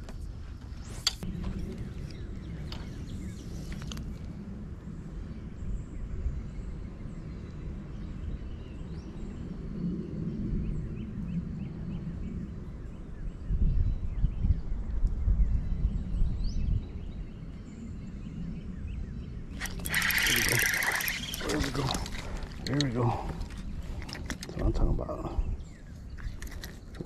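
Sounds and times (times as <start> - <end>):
wind rumbling on microphone: 0.0 - 27.0
faint bird chirps: 16.6 - 23.8.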